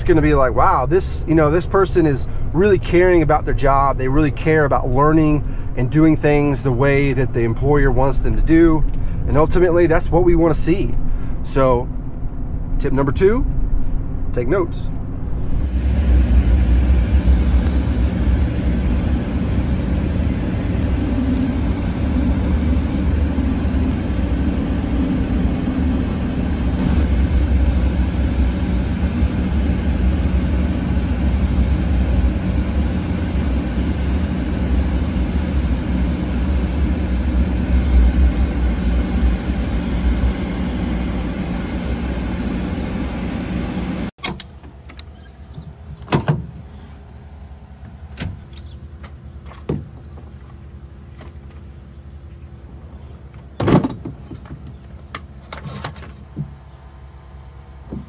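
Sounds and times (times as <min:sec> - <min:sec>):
vehicle engine and road noise: 0:00.0 - 0:58.0.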